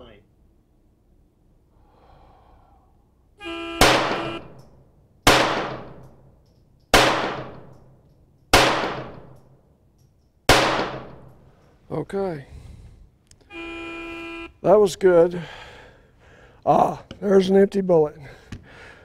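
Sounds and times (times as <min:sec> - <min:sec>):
pistol shots echoing: 0:03.8 - 0:04.6, 0:05.2 - 0:09.6, 0:10.5 - 0:11.4.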